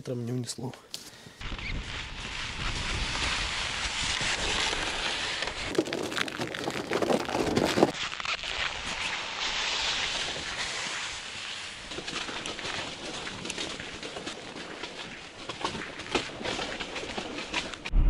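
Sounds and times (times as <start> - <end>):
tent fabric rustling and flapping: 1.4 - 17.9.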